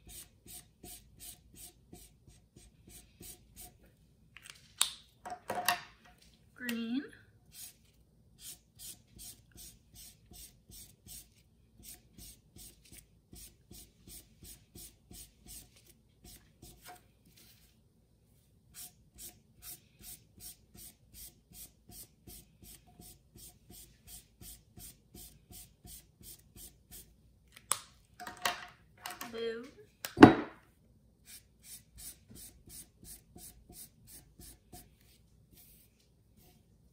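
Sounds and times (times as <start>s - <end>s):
marker scratching on paper: 0.0s - 3.8s, 7.5s - 16.9s, 31.3s - 36.6s.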